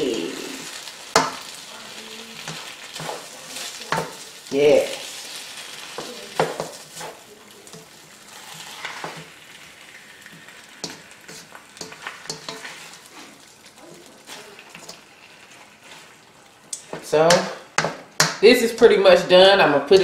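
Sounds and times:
chicken sizzling in a skillet: 0.0s - 20.0s
utensil scraping and tapping pan: 5.9s - 9.3s, 10.3s - 13.0s.

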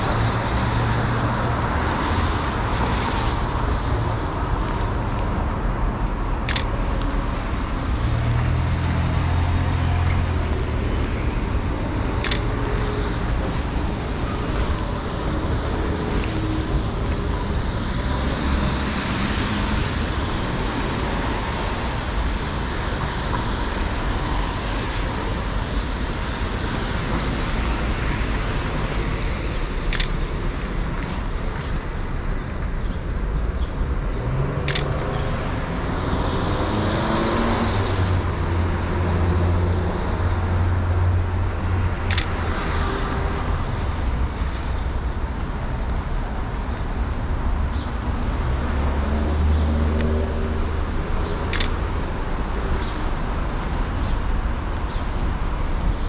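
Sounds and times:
heavy vehicle engine rumble: 0.0s - 24.1s
traffic on wet road: 0.0s - 56.0s
camera shutter clicks: 6.4s - 6.8s, 12.2s - 12.7s, 30.0s - 30.2s, 34.7s - 35.0s, 42.1s - 42.4s, 51.6s - 51.8s.

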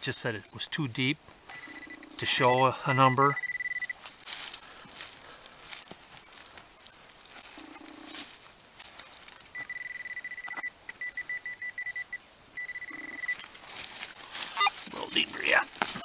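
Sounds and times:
metal detector electronic tone: 1.5s - 4.0s, 9.6s - 13.5s.

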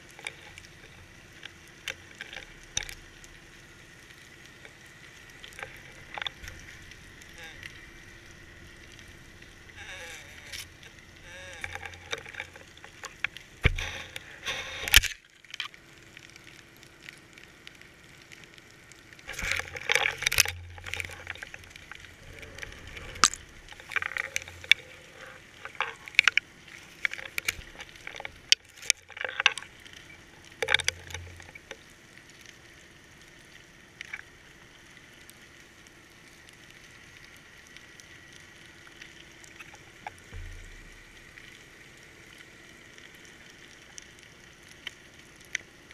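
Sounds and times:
underwater knocks and clicks: 5.3s - 15.7s, 19.2s - 31.8s, 39.5s - 41.7s
rushing water bursts: 19.2s - 28.5s.

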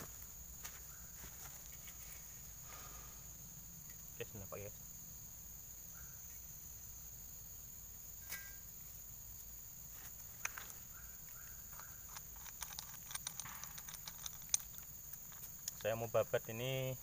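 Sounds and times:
crickets droning: 0.0s - 17.0s
small metal parts clicking: 11.7s - 16.0s.

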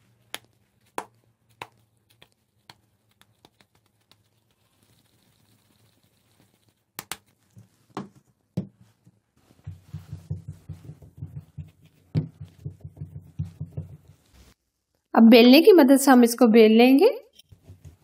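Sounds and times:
hands patting dough: 0.0s - 14.6s, 17.5s - 18.0s
plastic bowl knocking on wood: 9.6s - 14.2s.

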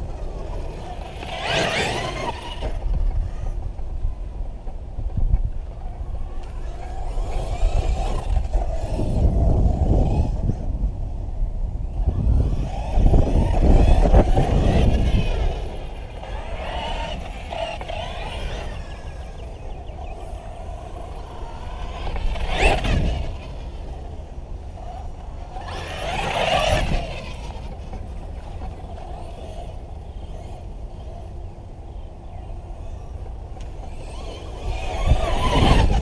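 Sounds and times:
electric motor whining: 0.0s - 3.6s, 11.9s - 36.0s.

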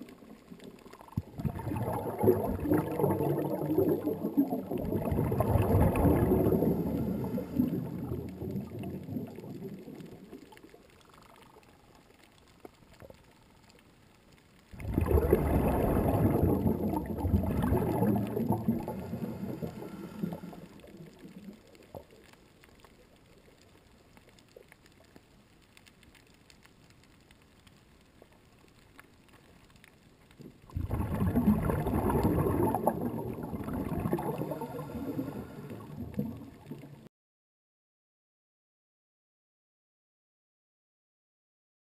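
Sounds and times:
underwater gurgling and bubbling: 0.0s - 13.4s, 14.7s - 23.6s, 30.3s - 37.1s.

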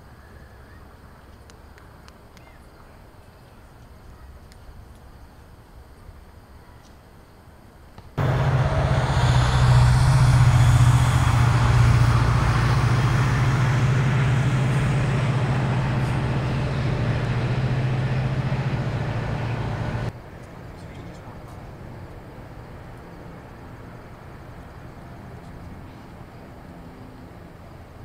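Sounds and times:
engine hiss: 8.2s - 20.1s
heavy engine rumbling: 8.2s - 20.2s.

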